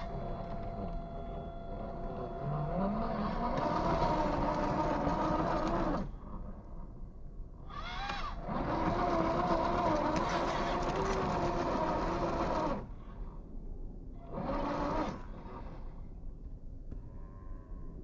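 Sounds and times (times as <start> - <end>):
electric motor whining: 0.0 - 6.1, 7.8 - 12.9, 14.2 - 15.5.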